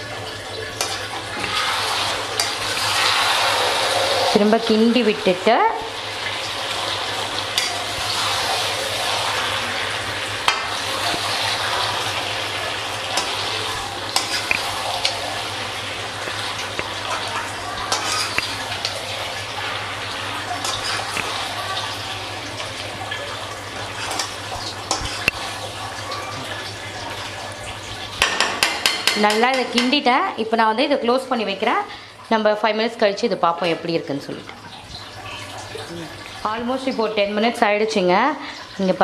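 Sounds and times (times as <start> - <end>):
chicken sizzling in a pan: 0.0 - 29.9
spatula scraping a pan: 16.8 - 19.0, 20.6 - 21.3.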